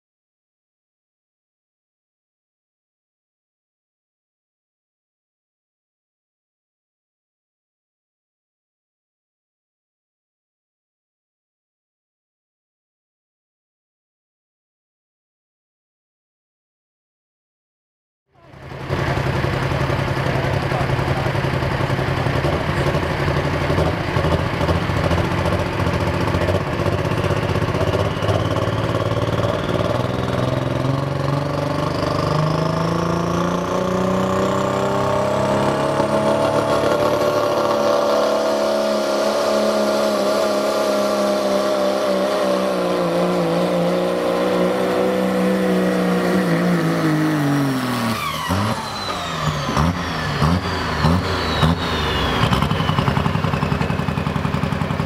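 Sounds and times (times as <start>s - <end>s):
diesel engine revving: 18.4s - 55.0s
high turbo whistle: 27.9s - 30.6s, 48.0s - 53.4s.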